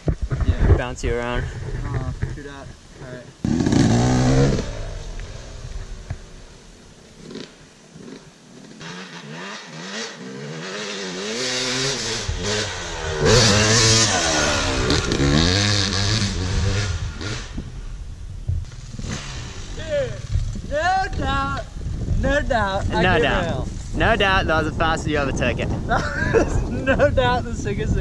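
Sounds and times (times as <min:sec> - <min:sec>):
dirt bike engine revving: 0:03.4 - 0:17.8, 0:18.9 - 0:20.3.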